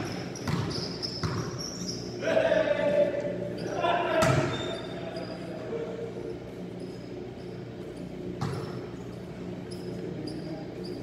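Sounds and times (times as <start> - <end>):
basketball bounce: 0.0 - 1.5, 4.2 - 4.6, 8.4 - 8.8
faint high shoe squeaks: 0.0 - 2.2, 3.5 - 11.0
echoing hall hum: 0.0 - 11.0.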